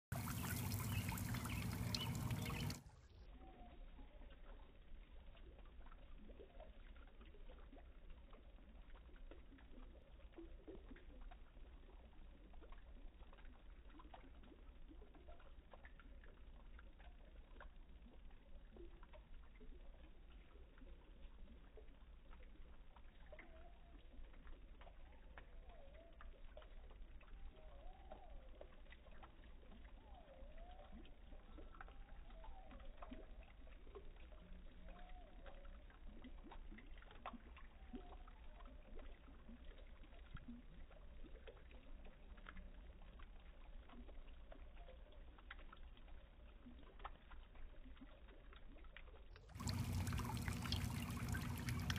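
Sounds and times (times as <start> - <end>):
steady low hum: 0.1 - 2.8, 49.6 - 51.9
low murky rumble: 49.6 - 51.9.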